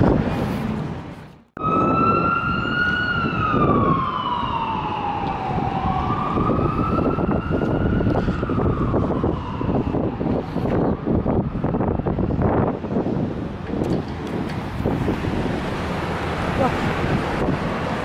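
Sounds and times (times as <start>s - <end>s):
city traffic noise: 0.0s - 18.0s
emergency vehicle siren wailing: 1.6s - 13.2s.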